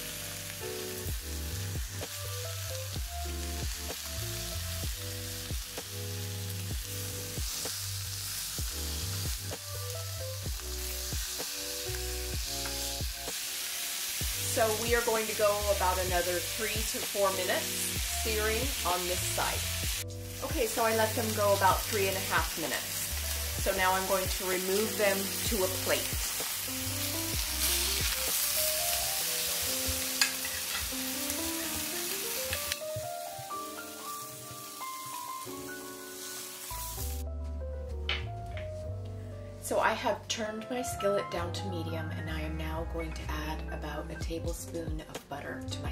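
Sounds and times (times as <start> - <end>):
background music with a beat: 0.0 - 14.5, 26.2 - 39.4
meat sizzling in a skillet: 0.0 - 37.2.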